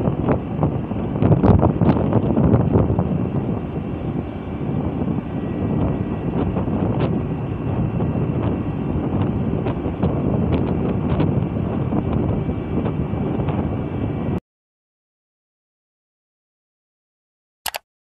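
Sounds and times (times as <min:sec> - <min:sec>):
wind buffeting microphone: 0:00.0 - 0:14.4.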